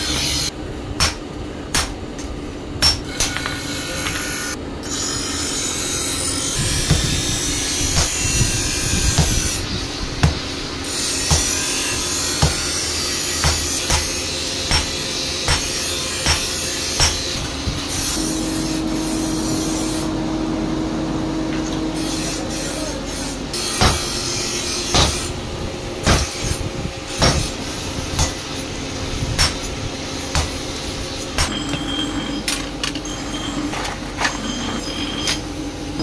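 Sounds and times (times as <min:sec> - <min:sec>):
steady hum: 0:00.0 - 0:36.0
hammer striking metal on anvil: 0:01.0 - 0:04.2, 0:11.2 - 0:12.8, 0:13.4 - 0:17.4, 0:23.6 - 0:25.3, 0:26.0 - 0:26.5, 0:27.2 - 0:27.6, 0:29.4 - 0:29.7, 0:30.3 - 0:30.6, 0:31.4 - 0:32.6.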